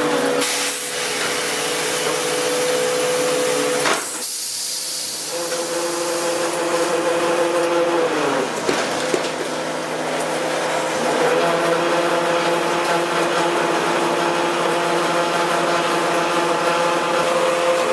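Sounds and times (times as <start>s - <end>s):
conveyor mechanical whine: 0.0s - 17.9s
broad hiss: 4.0s - 5.3s.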